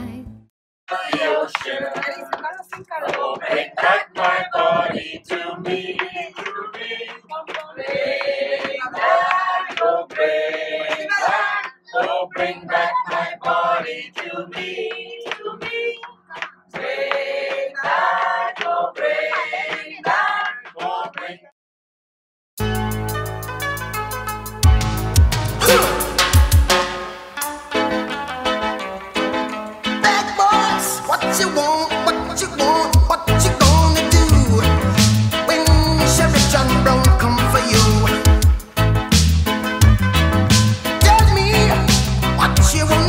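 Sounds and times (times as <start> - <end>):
person speaking: 25.6 - 26.2.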